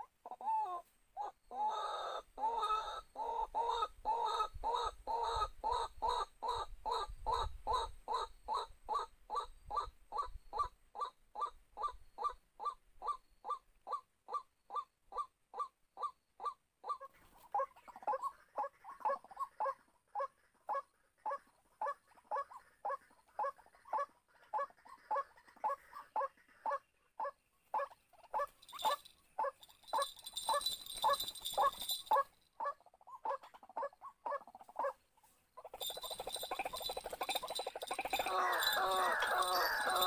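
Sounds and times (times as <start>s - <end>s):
waterhen calling: 35.6s - 40.0s.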